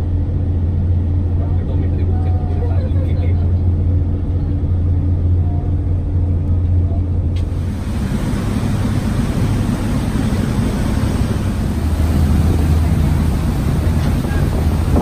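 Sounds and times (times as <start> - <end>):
ferry engines droning: 0.0 - 15.0
water rushing in wake: 7.2 - 15.0.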